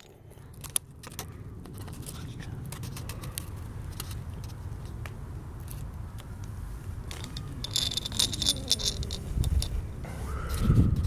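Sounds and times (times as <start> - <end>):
small plastic parts clicking: 0.0 - 4.6, 7.1 - 9.8
low outdoor rumble: 0.0 - 11.0
small parts jingling on stone: 7.1 - 9.8.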